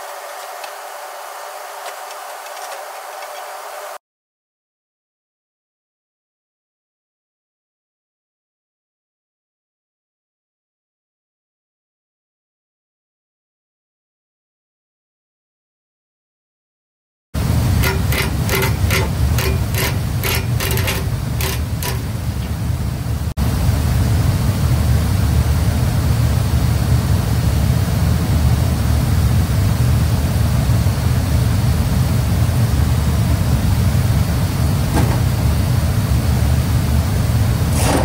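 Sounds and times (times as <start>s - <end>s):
hand ratchet clicking: 17.8s - 22.6s.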